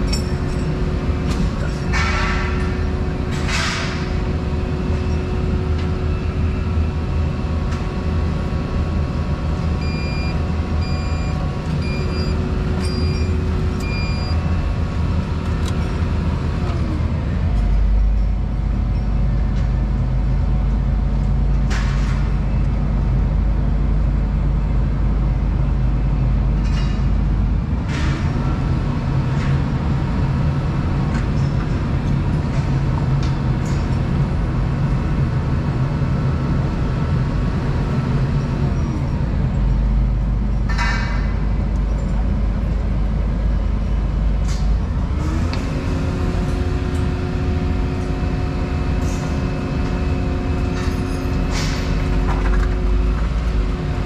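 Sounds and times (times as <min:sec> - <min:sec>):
excavator diesel engine and hydraulics: 0:00.0 - 0:54.0
short electronic beeps: 0:09.8 - 0:14.4.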